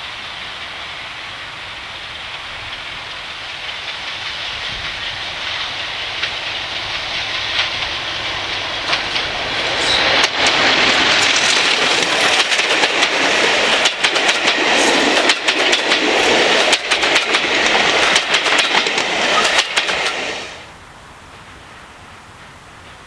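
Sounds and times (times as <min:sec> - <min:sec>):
train running past: 0:00.0 - 0:23.0
wheels clattering over rail joints: 0:02.3 - 0:20.4.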